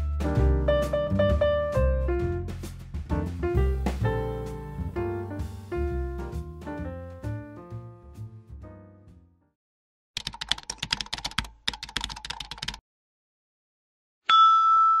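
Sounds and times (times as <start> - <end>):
background music: 0.0 - 9.4
keyboard typing clicks: 10.2 - 12.8.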